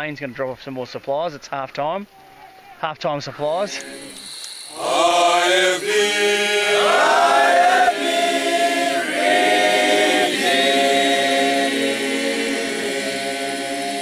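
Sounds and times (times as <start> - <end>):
group singing unaccompanied: 3.4 - 14.0.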